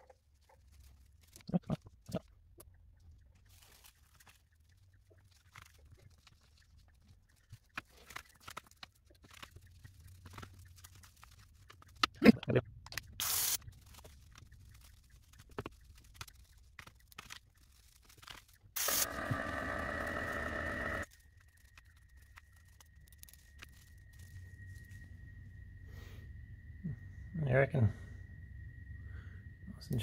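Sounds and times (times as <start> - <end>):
cling wrap crinkling: 3.2 - 12.2, 13.0 - 19.0, 21.0 - 25.0
airbrush spray hisses: 13.2 - 13.6, 18.8 - 21.0
steady pitched hum: 18.8 - 30.0.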